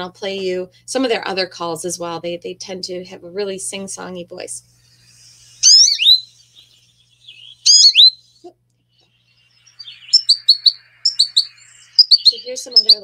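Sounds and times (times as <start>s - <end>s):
high whistled bird calls: 4.9s - 13.0s
short twittering notes: 5.1s - 8.4s, 9.0s - 13.0s.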